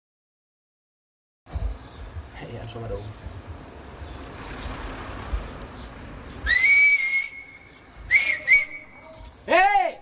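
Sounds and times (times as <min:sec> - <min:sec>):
person whistling loudly: 0:06.4 - 0:08.9.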